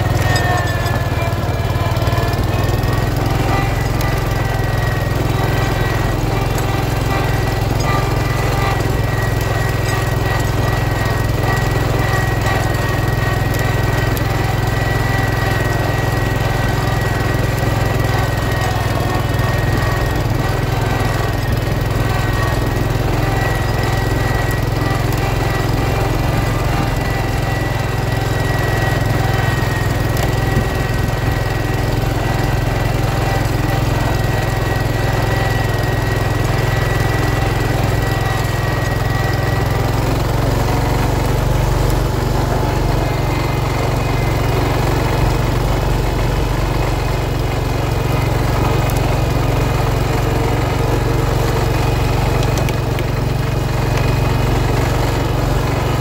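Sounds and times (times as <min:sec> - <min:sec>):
tractor engine running under load: 0:00.0 - 0:56.0.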